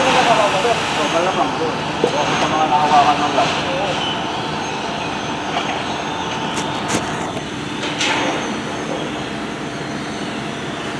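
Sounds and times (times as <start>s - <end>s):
workshop machinery drone: 0.0s - 10.9s.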